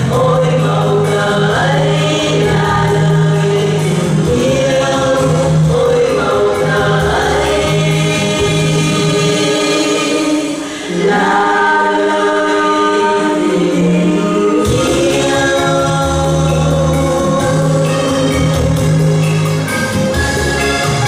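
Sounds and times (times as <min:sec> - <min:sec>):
bass and drums: 0:00.0 - 0:10.6, 0:14.6 - 0:21.0
women singing in harmony: 0:00.0 - 0:19.3
instrumental accompaniment: 0:13.2 - 0:21.0.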